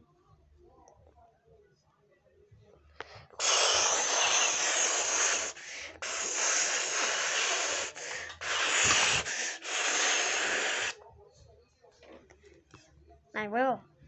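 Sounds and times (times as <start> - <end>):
rubbing against phone microphone: 3.1 - 11.0.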